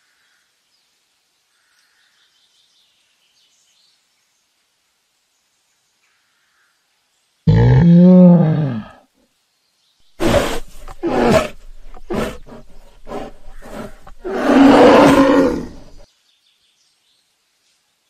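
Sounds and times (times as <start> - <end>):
animal rough calls: 7.5 - 9.0, 10.1 - 16.0.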